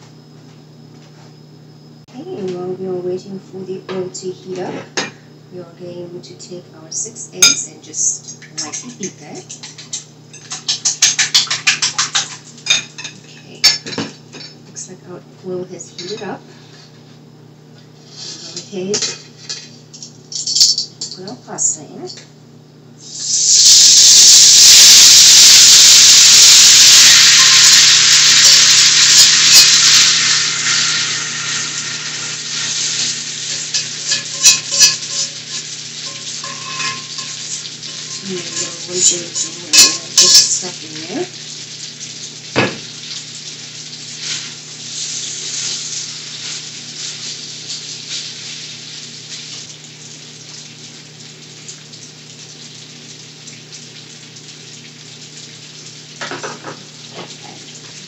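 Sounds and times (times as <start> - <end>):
metal tongs clinking on skillet: 7.4 - 14.6, 16.0 - 16.4, 18.9 - 21.2, 30.6 - 40.8
pasta sizzling in hot oil: 23.0 - 58.0.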